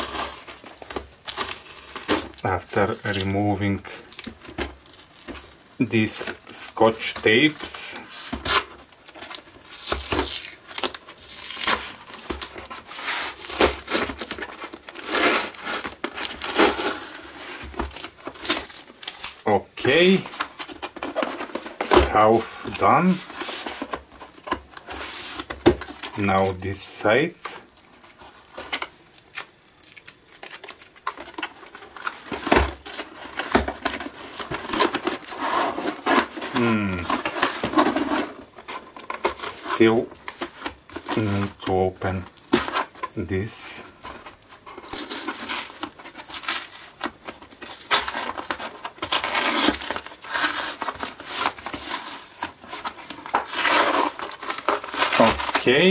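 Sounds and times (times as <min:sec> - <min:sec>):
cardboard box tearing open: 0:00.0 - 0:03.3, 0:07.2 - 0:26.2, 0:28.6 - 0:43.4, 0:44.0 - 0:55.9
tape crinkling: 0:00.0 - 0:55.9
packing tape ripping: 0:07.6 - 0:22.0, 0:28.7 - 0:39.6, 0:43.6 - 0:55.9.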